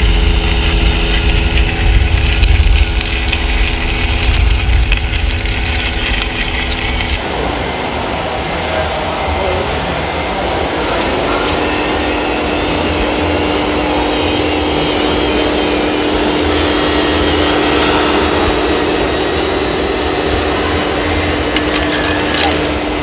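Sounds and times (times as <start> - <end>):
toy truck motors whirring: 0.0 - 7.2, 16.2 - 23.0
constant hum: 0.0 - 23.0
higher whine: 0.0 - 23.0.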